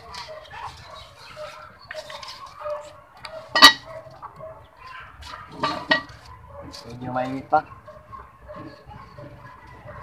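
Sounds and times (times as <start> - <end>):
chickens clucking: 0.0 - 10.0.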